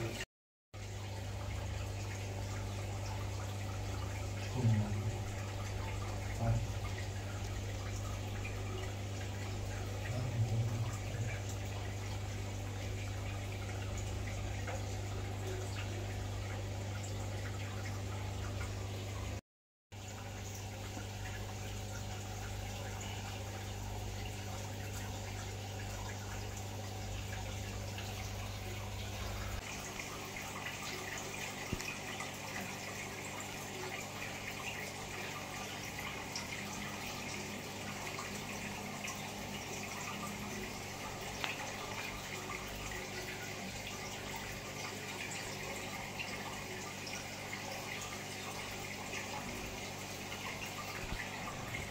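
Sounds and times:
low electrical hum: 0:00.8 - 0:19.4, 0:20.0 - 0:51.9
water trickling and dripping: 0:00.8 - 0:19.4, 0:20.0 - 0:51.9
steady low hum: 0:01.0 - 0:19.1.

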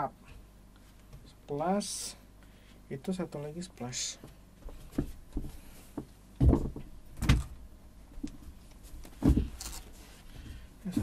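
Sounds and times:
heavy thumps: 0:04.7 - 0:07.4, 0:09.1 - 0:09.6.

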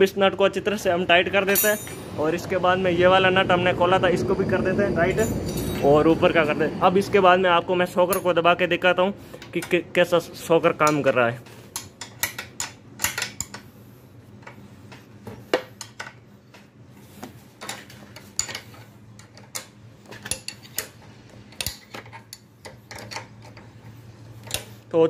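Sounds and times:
spanner clinking against nuts: 0:01.5 - 0:02.1, 0:05.2 - 0:06.0, 0:17.6 - 0:23.7.

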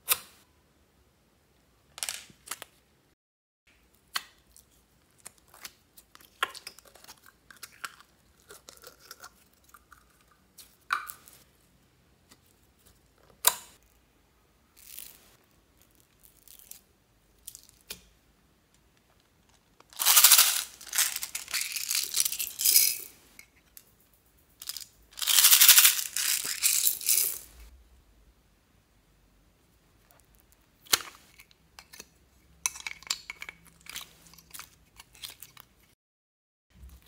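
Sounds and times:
plastic beads pouring onto slime: 0:20.0 - 0:23.0, 0:24.6 - 0:27.5.

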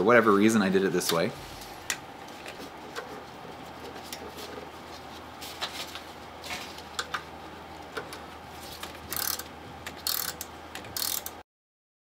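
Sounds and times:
scraping rustles: 0:01.4 - 0:06.9.

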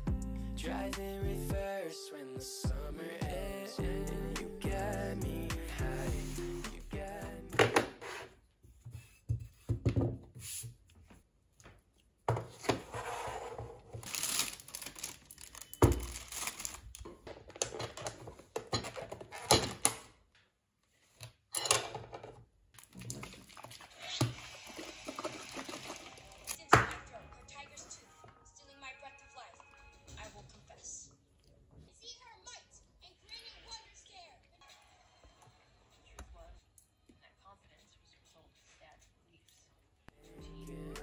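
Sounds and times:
plastic bag crinkling: 0:13.9 - 0:17.0.

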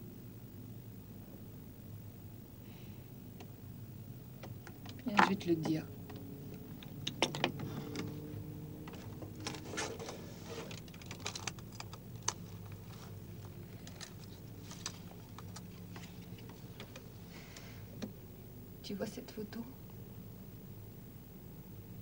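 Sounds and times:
low steady hum: 0:00.0 - 0:22.0
small irregular clicks: 0:04.4 - 0:08.1, 0:08.8 - 0:18.2
soft handling rustles: 0:04.4 - 0:17.6.

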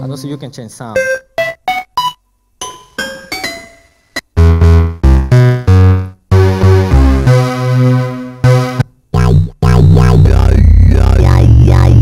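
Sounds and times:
synthesizer notes: 0:01.0 - 0:02.3, 0:04.3 - 0:12.0.

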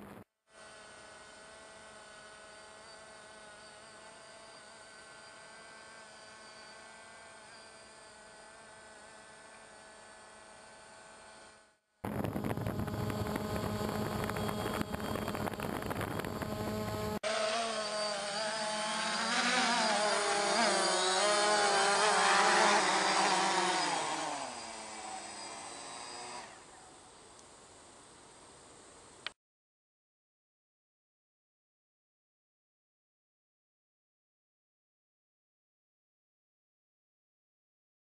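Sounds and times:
drone propellers buzzing: 0:00.0 - 0:26.7.

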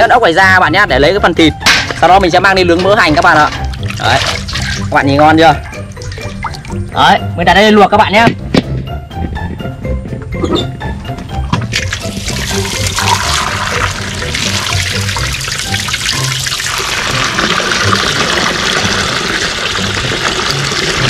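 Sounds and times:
background music: 0:00.0 - 0:21.0
water pouring into wok: 0:03.0 - 0:06.9, 0:11.7 - 0:21.0.

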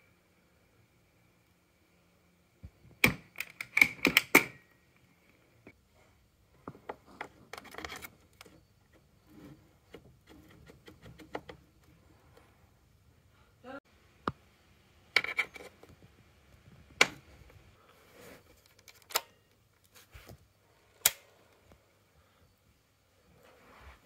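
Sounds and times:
soft clicks and handling noises: 0:18.4 - 0:21.9.

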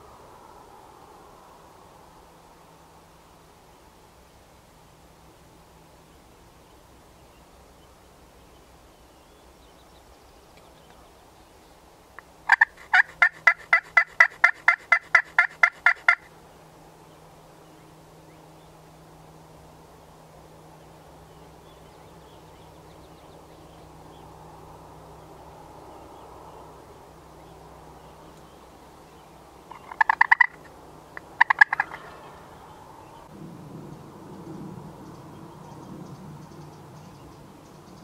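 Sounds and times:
wild turkey yelping: 0:12.5 - 0:16.3, 0:29.7 - 0:32.6.

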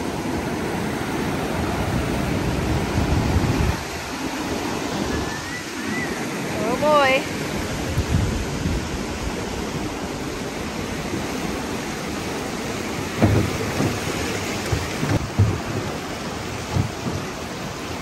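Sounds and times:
wind on microphone: 0:00.0 - 0:12.3
river water rushing and splashing: 0:00.0 - 0:18.0
low thumps: 0:13.2 - 0:17.4.

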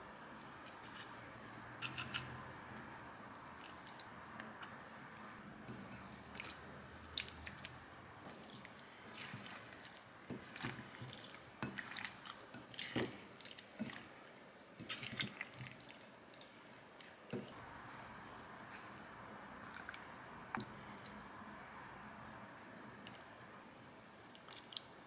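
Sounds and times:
wet squelching of spatula mixing: 0:05.8 - 0:21.4, 0:24.2 - 0:25.0.

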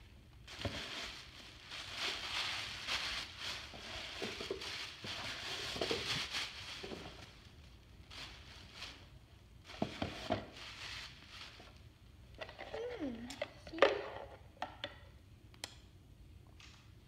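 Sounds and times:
tissue paper rustling: 0:00.4 - 0:11.9.

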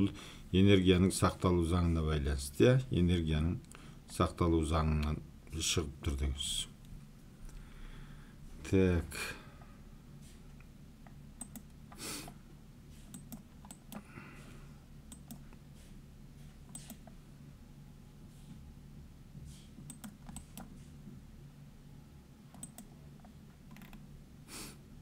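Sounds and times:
low steady hum: 0:00.0 - 0:25.0
mouse and keyboard clicks: 0:16.7 - 0:17.2, 0:22.6 - 0:24.0.

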